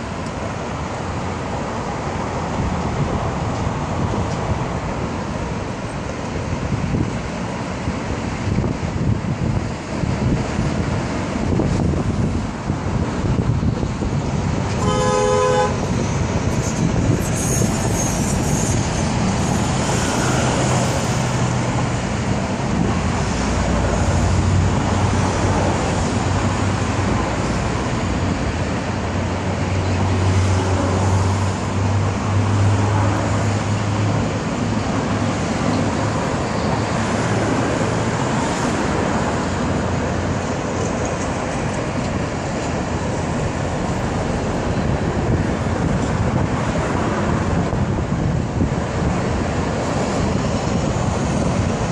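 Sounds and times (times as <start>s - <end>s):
road traffic: 0.0s - 51.9s
vehicle horn: 14.8s - 15.9s.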